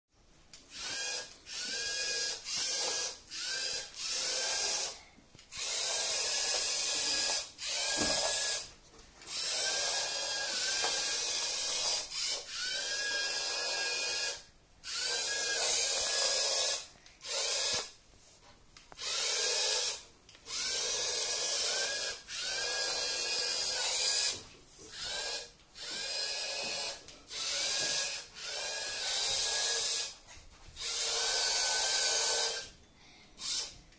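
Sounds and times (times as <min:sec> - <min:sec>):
electric motors whirring: 0:00.7 - 0:08.7, 0:09.3 - 0:17.9, 0:19.0 - 0:30.2, 0:30.8 - 0:32.7.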